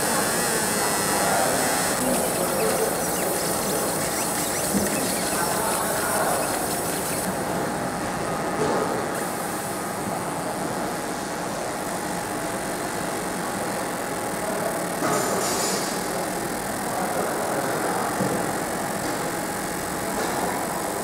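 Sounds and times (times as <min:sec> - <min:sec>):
laser engraver hiss: 0:01.8 - 0:07.3.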